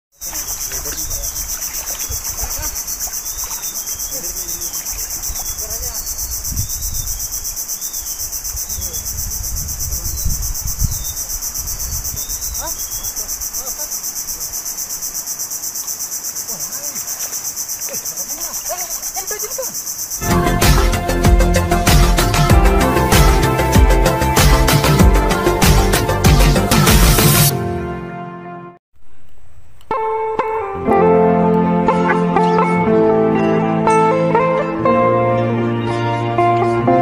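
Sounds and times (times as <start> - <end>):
insects buzzing: 0.2 - 26.7.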